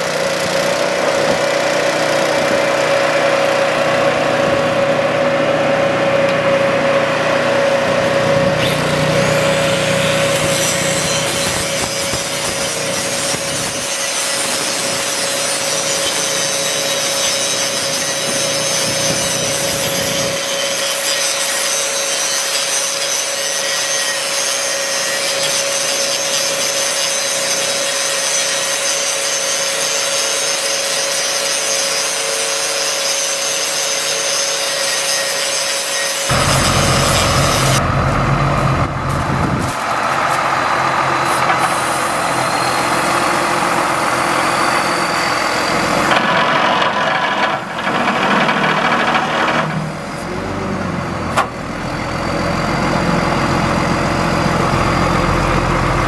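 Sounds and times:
angle grinder grinding steel: 0:00.0 - 0:50.3
truck engine idling: 0:36.3 - 0:46.1, 0:47.0 - 0:56.0.

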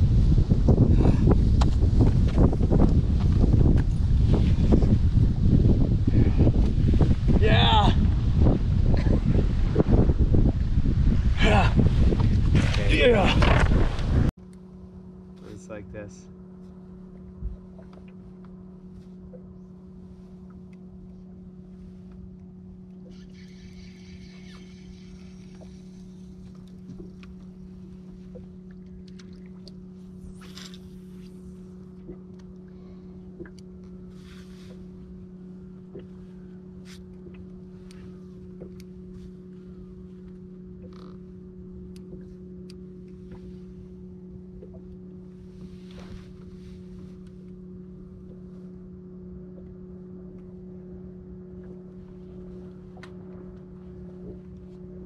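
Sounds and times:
electric trolling motor hum: 0:08.0 - 0:55.0.

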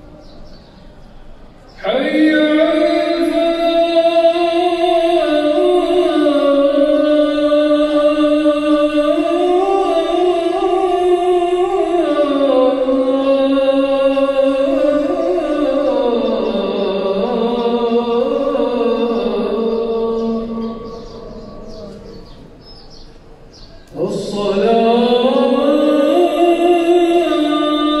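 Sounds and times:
person chanting: 0:01.7 - 0:22.8, 0:23.8 - 0:28.0.

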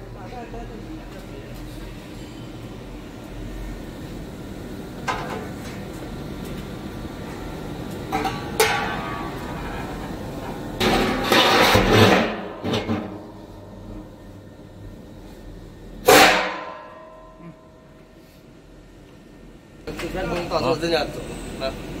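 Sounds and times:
low steady hum: 0:00.0 - 0:22.0
metal clatter: 0:08.1 - 0:13.2
metal knocking and scraping: 0:08.1 - 0:13.3.

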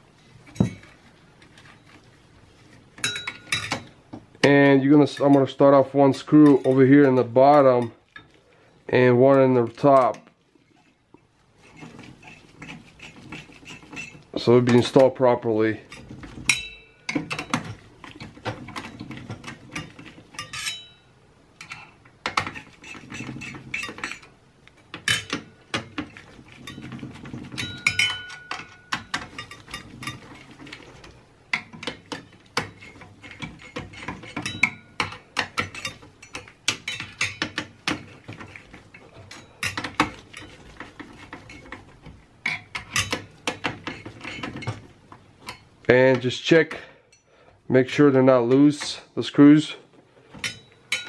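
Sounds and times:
screwdriver clicking and scraping metal: 0:11.6 - 0:15.1, 0:24.9 - 0:44.8.

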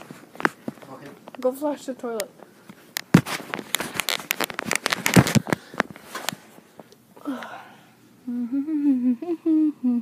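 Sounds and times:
phone handling clicks and rustling: 0:02.2 - 0:06.9
person humming a tune: 0:07.2 - 0:10.0.

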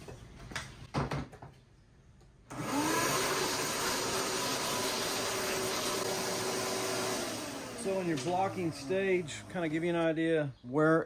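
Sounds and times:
shop vacuum motor running: 0:02.5 - 0:10.2.

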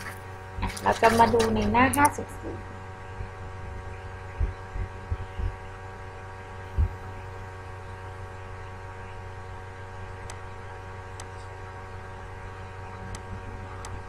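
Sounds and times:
steady electrical hum: 0:00.0 - 0:14.0
dull low thumps: 0:04.3 - 0:05.7, 0:06.7 - 0:07.2.

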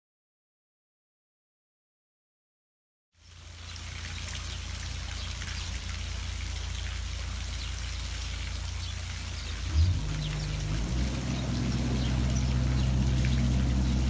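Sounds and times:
water rushing and trickling: 0:03.2 - 0:14.0
low rumble: 0:09.5 - 0:14.0.

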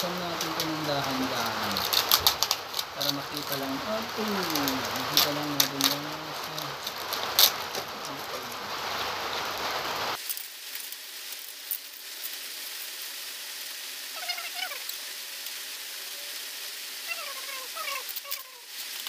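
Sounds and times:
plastic bag crinkling: 0:00.0 - 0:13.1
steady hiss: 0:00.0 - 0:19.0.

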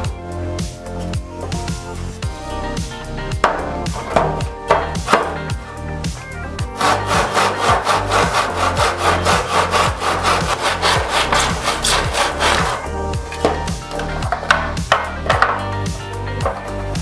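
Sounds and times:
hand saw cutting wood: 0:04.0 - 0:05.5, 0:06.7 - 0:15.1.

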